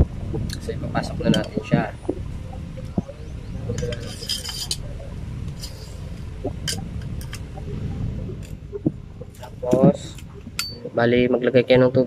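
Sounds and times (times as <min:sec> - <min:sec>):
steel pump parts clinking: 0:03.8 - 0:04.8, 0:10.6 - 0:10.8.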